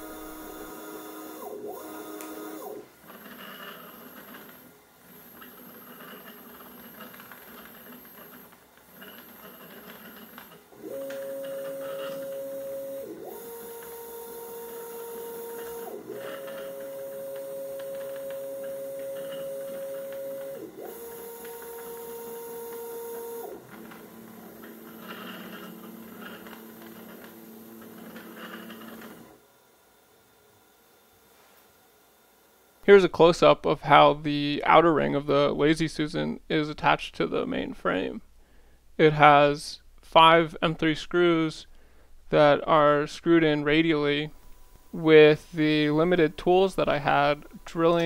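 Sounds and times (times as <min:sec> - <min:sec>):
stepper motors whining: 0:00.0 - 0:29.4, 0:42.4 - 0:48.0
quiet hum: 0:23.5 - 0:48.0.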